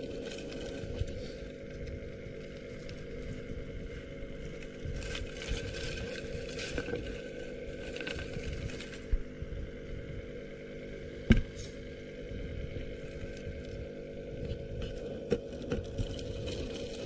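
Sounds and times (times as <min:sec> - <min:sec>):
steady low hum: 0:00.0 - 0:17.0
thump: 0:11.3 - 0:11.6.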